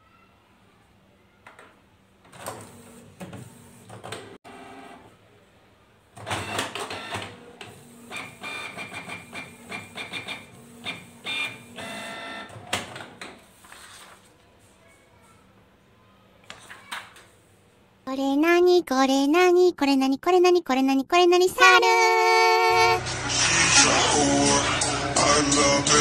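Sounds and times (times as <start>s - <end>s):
printer clicking and whirring: 6.2s - 13.4s.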